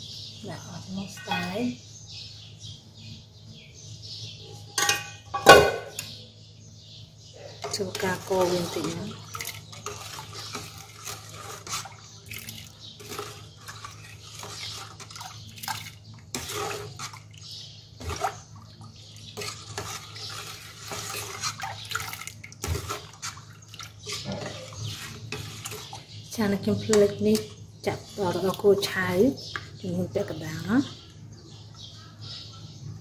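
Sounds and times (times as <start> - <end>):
spoon scraping and clinking on pot: 7.6 - 17.3, 19.3 - 26.0
liquid sloshing in pot: 7.6 - 29.7.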